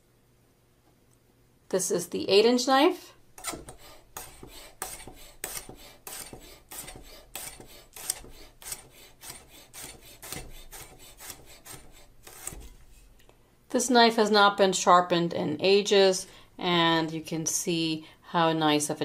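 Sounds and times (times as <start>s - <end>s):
knife slicing onion: 3.4s - 12.9s.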